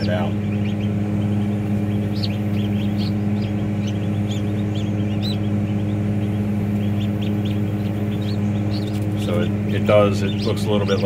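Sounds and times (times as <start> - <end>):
ducklings peeping: 0.0 - 11.0
incubator humming: 0.0 - 11.0.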